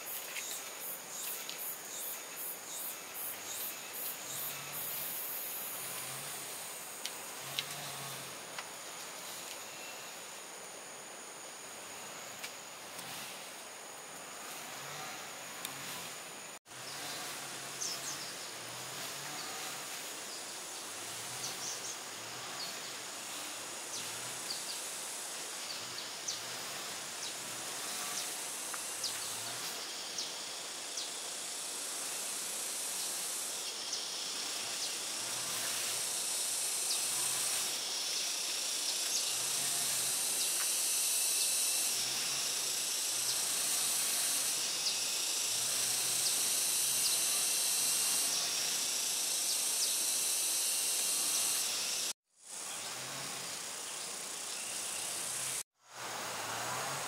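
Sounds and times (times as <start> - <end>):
faint ticks and chirps: 0.0 - 6.4
high-pitched insect drone: 0.0 - 11.0, 13.0 - 57.0.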